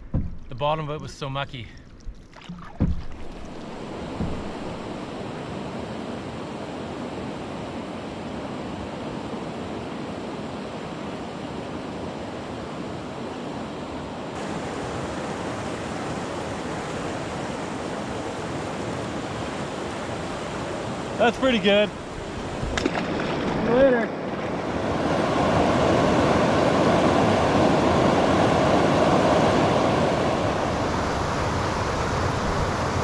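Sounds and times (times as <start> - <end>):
brief knock: 0.0 - 0.5, 2.5 - 5.0
choppy lake water: 0.0 - 33.0
wind on microphone: 2.8 - 13.2, 21.9 - 33.0
river rapids rushing: 3.3 - 6.2, 14.4 - 33.0.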